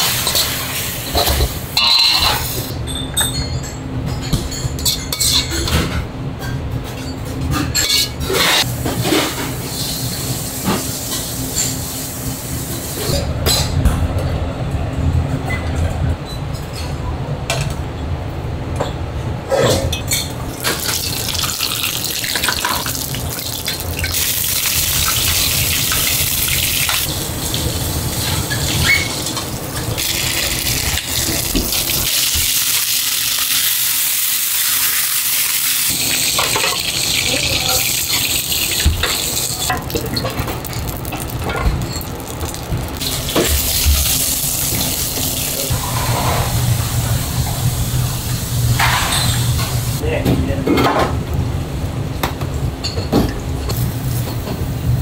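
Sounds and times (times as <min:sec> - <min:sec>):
dishes and utensils clinking: 0:00.0 - 0:09.5, 0:48.8 - 0:49.8.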